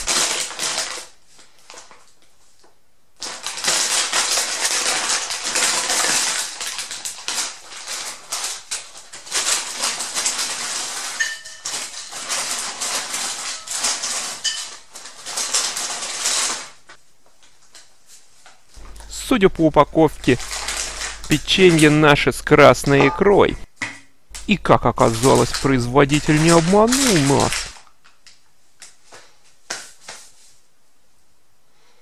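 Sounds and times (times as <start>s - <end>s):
plastic chip bag crinkling: 0.0s - 2.2s, 3.2s - 16.8s, 18.8s - 23.6s, 24.3s - 28.4s.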